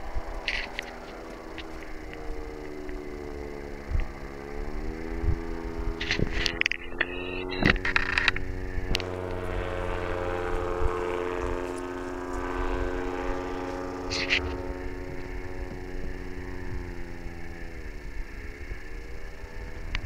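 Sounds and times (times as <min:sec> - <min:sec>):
paraglider engine droning: 0:00.0 - 0:20.0
sharp clicks: 0:06.0 - 0:09.1.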